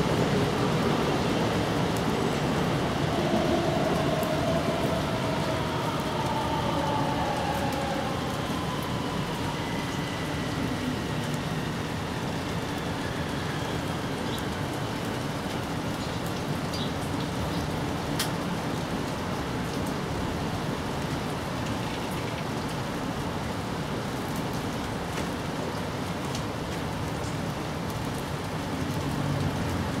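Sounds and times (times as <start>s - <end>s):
steady rain falling: 0.0s - 30.0s.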